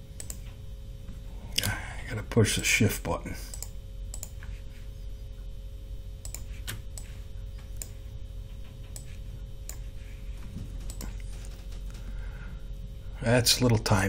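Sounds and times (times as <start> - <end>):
low electrical hum: 0.0 - 14.0
computer mouse clicks: 0.2 - 0.5, 3.5 - 4.5, 6.2 - 8.0, 8.6 - 9.9, 10.8 - 11.7.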